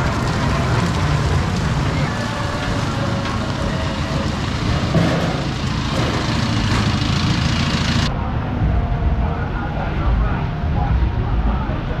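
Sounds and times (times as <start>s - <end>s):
rain hiss: 0.0s - 8.1s
traffic engines rumbling: 0.0s - 12.0s.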